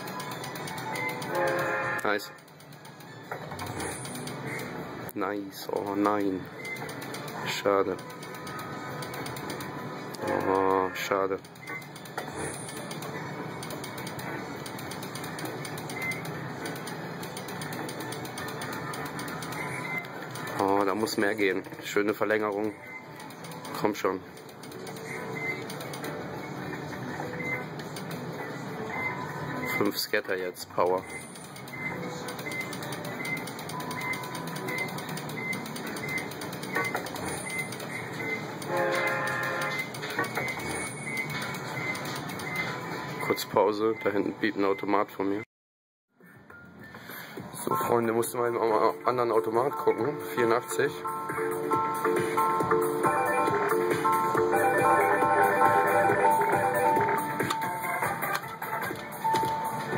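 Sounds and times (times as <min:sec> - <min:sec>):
slot machine reel-spin clicking: 0:00.0 - 0:05.1, 0:05.7 - 0:28.4, 0:29.7 - 0:43.2, 0:48.0 - 0:59.9
arcade room noise: 0:00.0 - 0:45.4, 0:46.3 - 0:59.9
electronic beeps and jingles: 0:47.6 - 0:58.2
multi-tone sound: 0:47.6 - 0:59.9.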